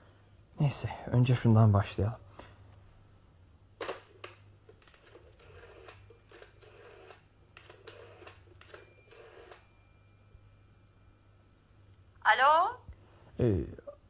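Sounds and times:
telephone dial clicking: 3.8s - 9.6s
faint steady tone: 8.6s - 14.0s.

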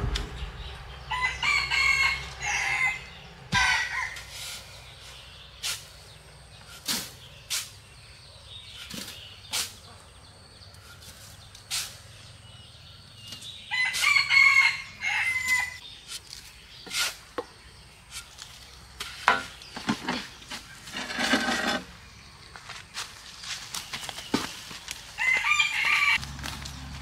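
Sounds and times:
rooster crowing: 1.1s - 4.2s, 13.7s - 15.8s, 25.2s - 26.2s
shovel digging into sand: 5.6s - 7.8s, 10.8s - 12.2s.

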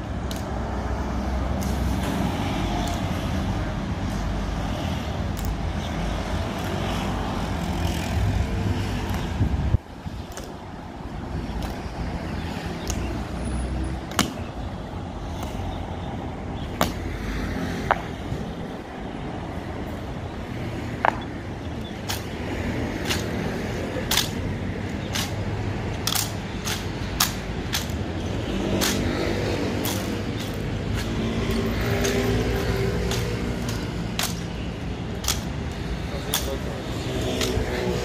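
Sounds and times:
low rumble of traffic: 0.0s - 38.0s
boot heels clacking: 24.1s - 34.6s.

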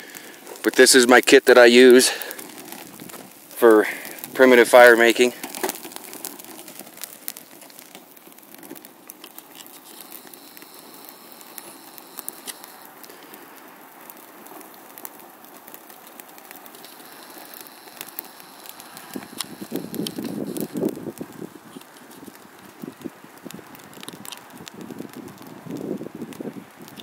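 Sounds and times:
sharp pops from fire: 0.0s - 27.0s
twig fire crackling: 0.0s - 27.0s.

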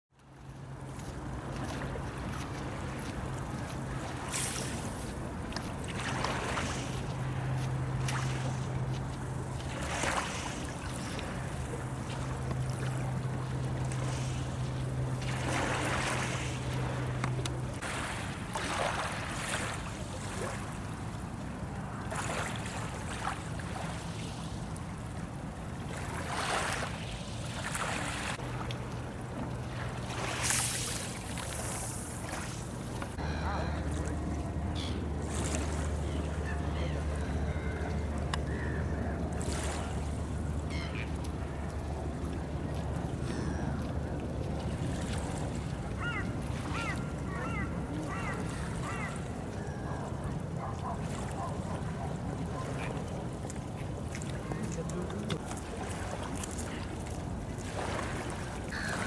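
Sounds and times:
lake water lapping: 0.2s - 59.0s
steady low hum: 31.0s - 45.4s.

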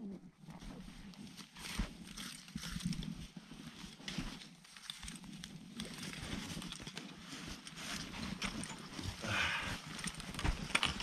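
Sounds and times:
clothing and snow rustling: 0.0s - 11.0s
climbing gear knocking and clinking: 3.7s - 11.0s.

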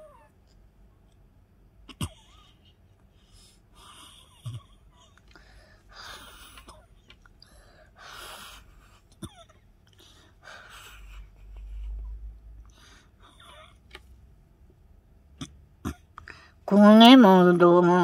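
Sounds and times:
faint breathing: 2.3s - 9.2s, 9.9s - 13.8s, 16.2s - 16.7s.

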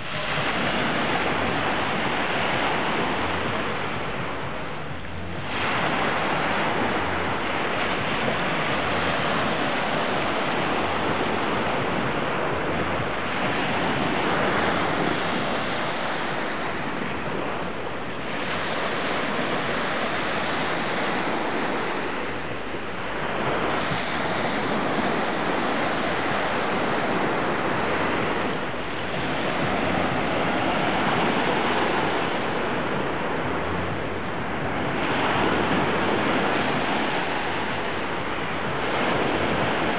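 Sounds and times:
waves washing up a beach: 0.0s - 39.9s.

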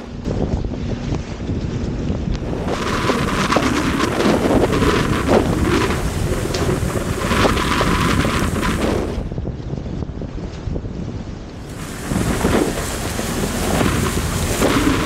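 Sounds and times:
wind buffeting microphone: 0.0s - 15.0s
stream water rushing: 2.4s - 9.3s, 11.6s - 15.0s
vehicle splashing through water: 2.4s - 9.3s, 11.6s - 15.0s.

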